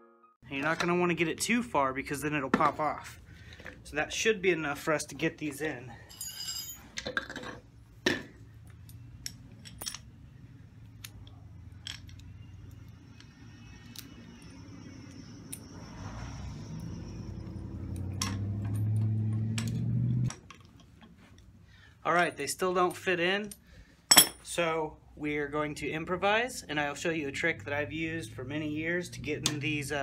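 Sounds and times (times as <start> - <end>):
metallic clinks of hand tools: 6.1 - 6.9
low hum: 7.7 - 20.4.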